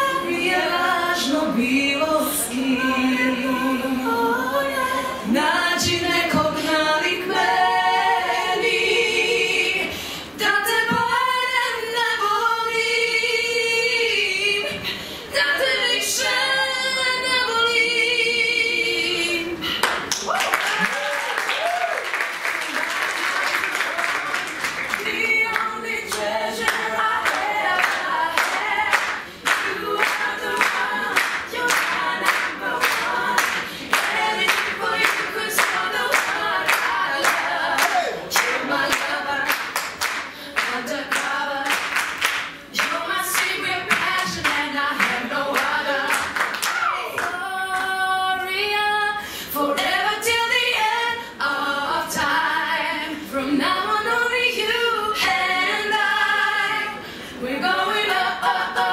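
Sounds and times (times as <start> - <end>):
singers in close harmony: 0.0 - 19.8, 23.6 - 58.9
rhythmic hand clapping: 19.8 - 48.0.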